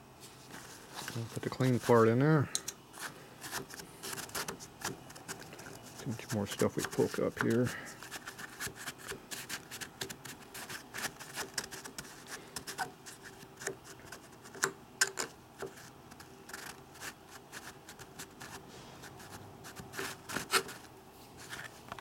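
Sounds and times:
paper towel rubbing: 15.7 - 21.7.

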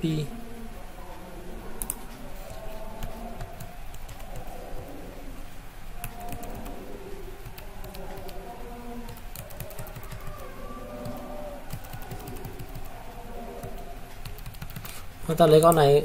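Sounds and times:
keyboard keys clicking: 9.1 - 13.0, 13.6 - 15.0.

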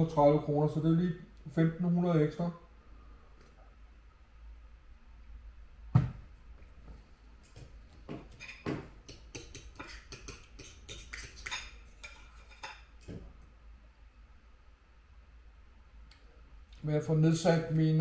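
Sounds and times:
glass set down with a thud: 5.9 - 6.2
knife and fork scraping a plate: 8.4 - 8.8, 9.4 - 12.9.

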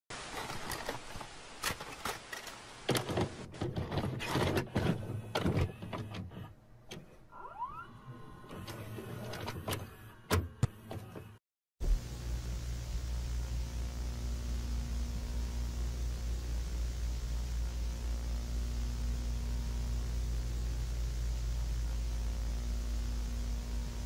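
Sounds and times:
static hiss: 0.1 - 3.5, 11.8 - 24.0
tape mechanism clunking and clicking: 0.4 - 7.1.

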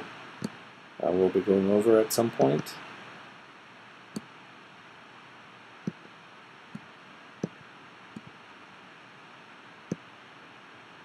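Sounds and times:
faint steady hiss: 0.0 - 11.0
computer mouse clicks: 2.4 - 2.7, 4.1 - 4.3.

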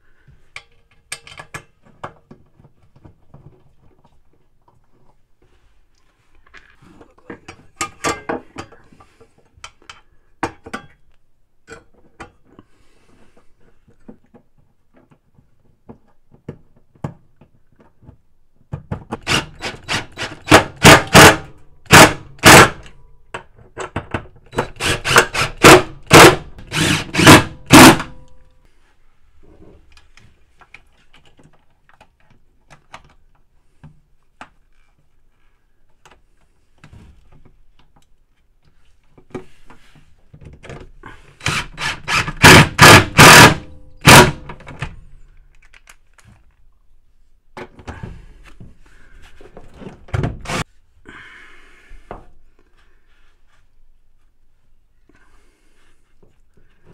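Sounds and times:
cordless driver bursts: 24.6 - 28.1, 41.4 - 44.4.

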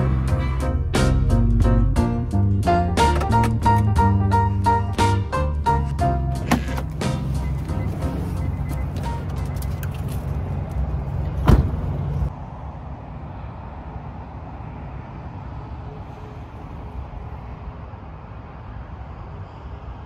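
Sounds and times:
music: 0.0 - 9.8
road traffic hum: 0.0 - 20.0
vehicle door shutting: 3.0 - 10.1, 11.4 - 12.0.

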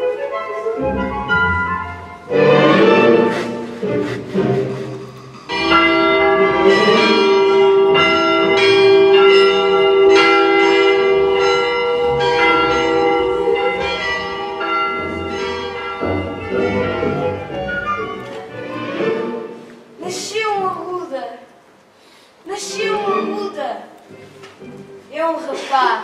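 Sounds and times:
church bells ringing: 0.8 - 3.6, 4.9 - 19.5.

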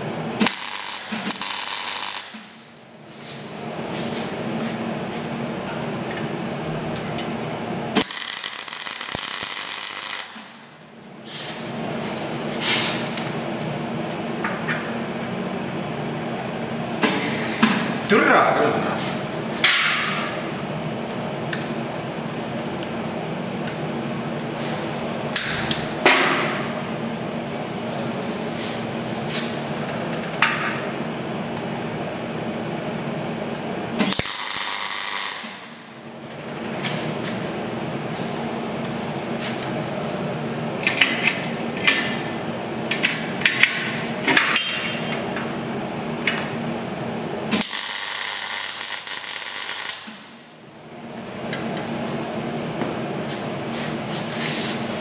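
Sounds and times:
steady shop hum: 0.0 - 55.0
welding machine humming: 0.3 - 2.8, 6.6 - 11.0, 33.5 - 39.8, 46.1 - 52.2
welding arc crackling: 0.4 - 2.5, 7.9 - 10.6, 34.0 - 35.8, 47.5 - 50.3.

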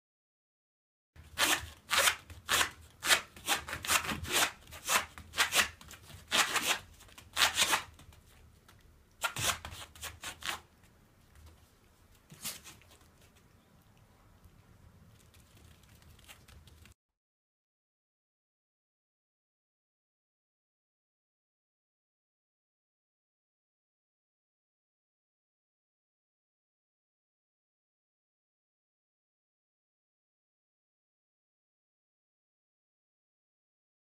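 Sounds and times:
dog claws scratching foam mat: 1.2 - 8.4, 9.2 - 10.7.

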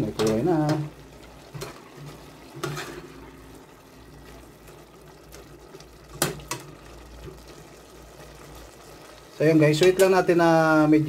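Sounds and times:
pot simmering and bubbling: 0.0 - 11.0
metal ladle scraping pot: 1.5 - 3.4.

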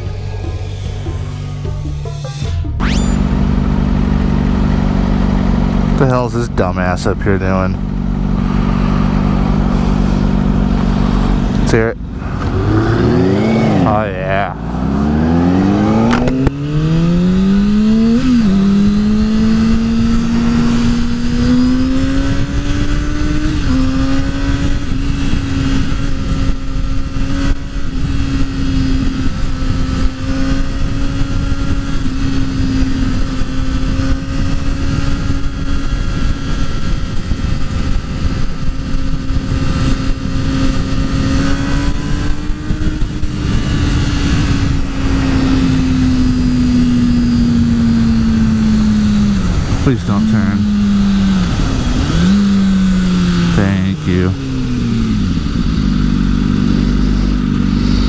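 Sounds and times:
motorcycle engine running: 0.0 - 58.0
wind rush on microphone: 14.6 - 49.8.

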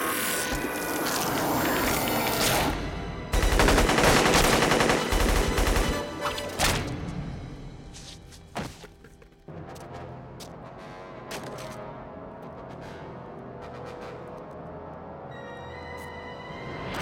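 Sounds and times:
film score: 0.0 - 17.0
rapid automatic gunfire: 3.3 - 6.1.

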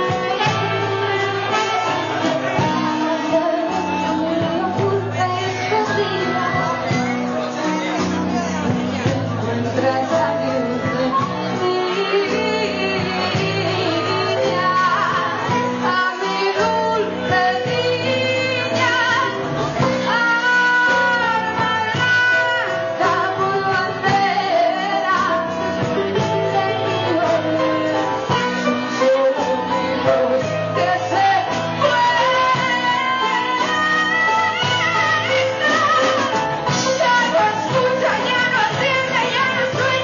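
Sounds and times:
bass guitar: 0.0 - 40.0
drums: 0.0 - 40.0
electric guitars: 0.0 - 40.0
woman singing: 0.0 - 40.0.

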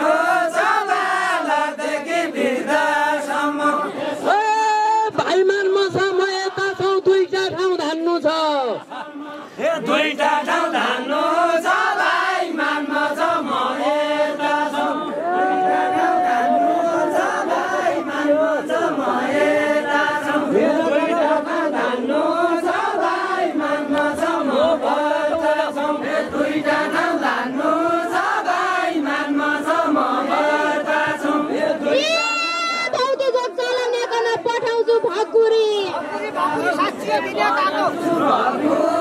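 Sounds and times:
group singing unaccompanied: 0.0 - 4.4, 8.8 - 32.3, 36.0 - 39.0.

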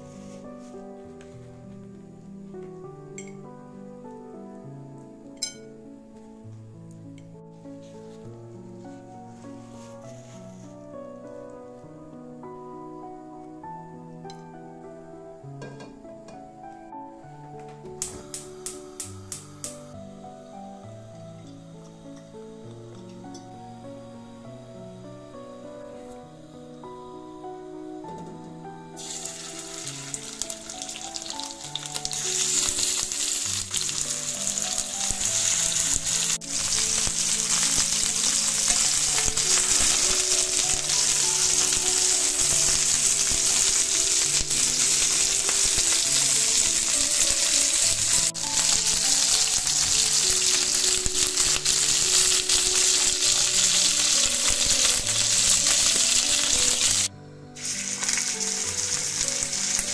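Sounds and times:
soft background music: 0.0 - 59.9
chicken frying in oil: 29.0 - 59.9.

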